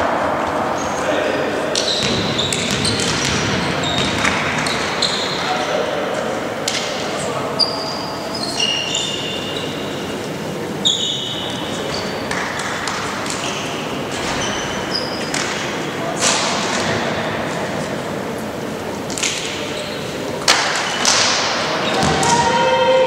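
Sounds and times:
sneakers squeaking on court: 0:01.8 - 0:05.7, 0:07.6 - 0:10.0, 0:10.8 - 0:15.6
indistinct voices: 0:21.1 - 0:23.0.

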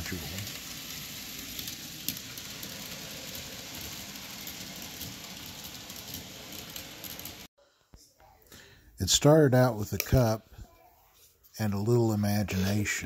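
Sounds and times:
model train wheels and motor hiss: 0:00.0 - 0:07.5.

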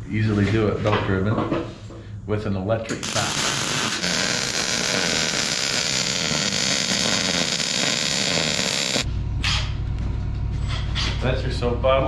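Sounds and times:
low hum: 0:01.9 - 0:12.0
welder arc crackling and hissing: 0:02.9 - 0:09.1.

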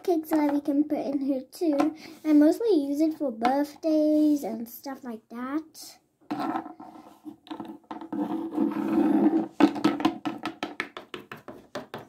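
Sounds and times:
toy tapping on tabletop: 0:09.7 - 0:12.0.

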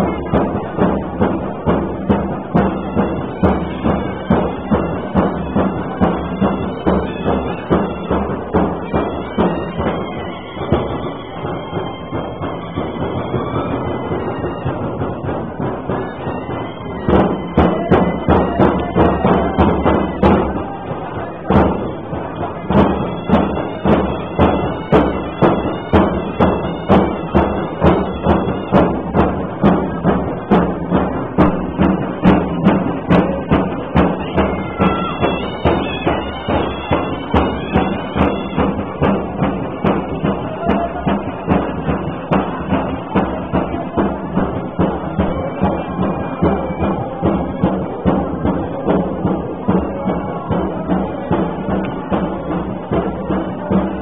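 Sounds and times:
crowd chatter: 0:00.0 - 0:54.0
drum beaten in steady rhythm: 0:00.0 - 0:54.0.

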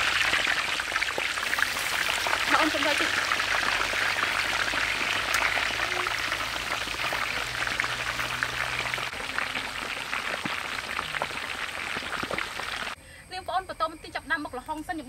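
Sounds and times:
pork deep-frying in oil: 0:00.0 - 0:13.0.

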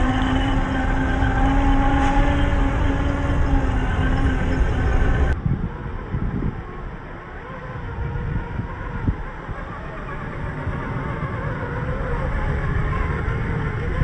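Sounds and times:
low rumble: 0:00.0 - 0:07.1
electric motors whining: 0:00.0 - 0:14.0.

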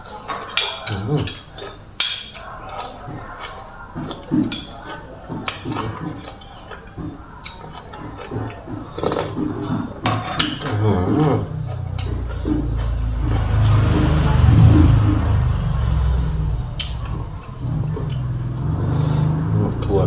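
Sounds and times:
cutlery clinking against plate: 0:00.0 - 0:13.1
chewing: 0:00.0 - 0:20.0.

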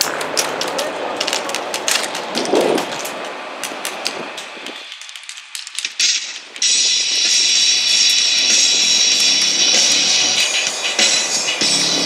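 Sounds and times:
music: 0:06.0 - 0:12.0.

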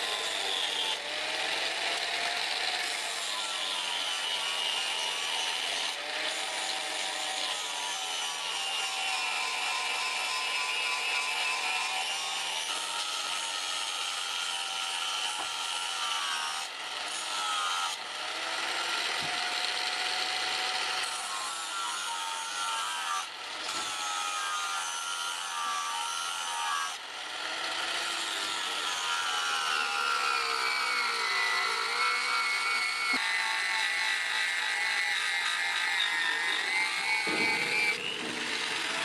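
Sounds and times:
angle grinder grinding steel: 0:00.0 - 0:39.0.

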